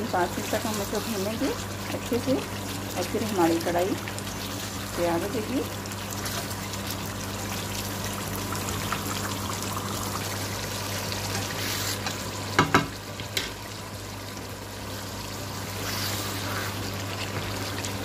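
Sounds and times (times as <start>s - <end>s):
chicken sizzling in a pan: 0.0s - 18.0s
spatula knocking against pan: 12.6s - 13.0s.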